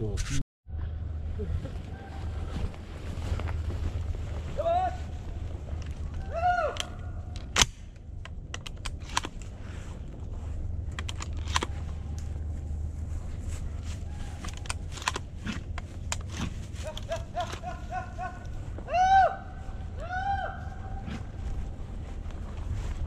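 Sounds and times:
low steady hum: 0:00.0 - 0:23.0
rustling through dry grass: 0:01.1 - 0:23.0
gun handling clicks: 0:06.8 - 0:09.5, 0:10.9 - 0:12.3, 0:14.4 - 0:17.6.

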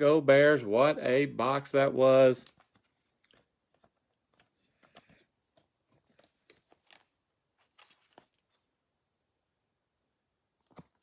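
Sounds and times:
trading cards rustling and clicking: 0:01.2 - 0:08.7.

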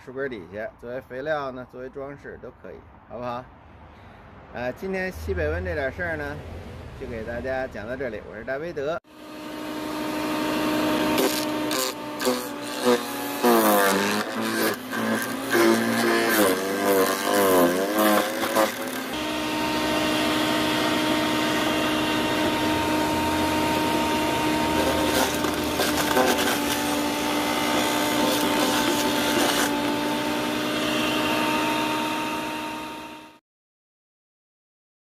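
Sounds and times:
shredder motor whine: 0:09.1 - 0:33.4
wood crunching and crackling: 0:11.1 - 0:19.2, 0:21.6 - 0:30.3.

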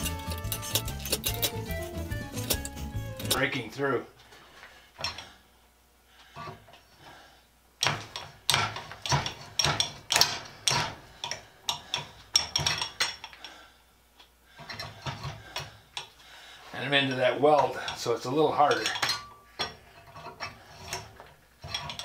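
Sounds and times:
hand drill clicking and scraping: 0:00.0 - 0:03.6.

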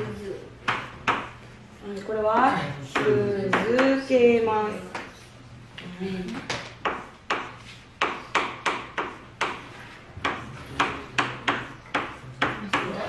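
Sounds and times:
sharp knocks on hard surface: 0:06.5 - 0:09.6.

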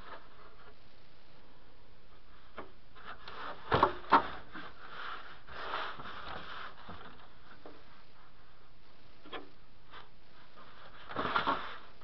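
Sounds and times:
rubbing and scraping: 0:02.2 - 0:08.7, 0:09.3 - 0:12.0.

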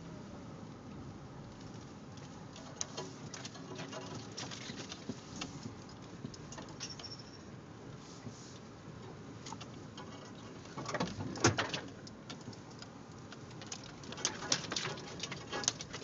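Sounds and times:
vehicle low rumble: 0:00.0 - 0:16.0
clicks knocks and rattles: 0:09.5 - 0:16.0.

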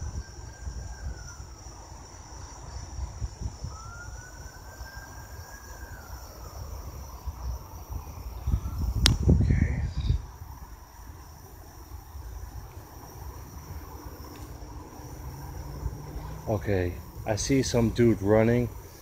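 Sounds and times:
crickets chirring: 0:00.0 - 0:19.0
microphone handling rumble: 0:08.4 - 0:10.3
sharp click: 0:09.0 - 0:09.2.

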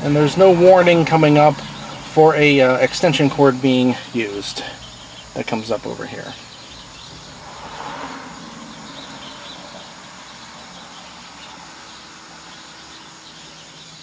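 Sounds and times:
crickets chirping: 0:00.0 - 0:14.0.

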